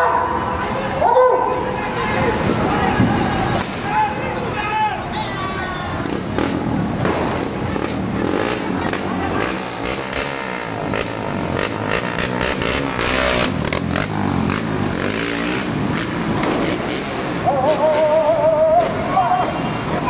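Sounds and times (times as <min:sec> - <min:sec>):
street traffic noise: 0:00.0 - 0:20.0
motorcycle engines running: 0:05.8 - 0:20.0
engine revving: 0:06.0 - 0:20.0.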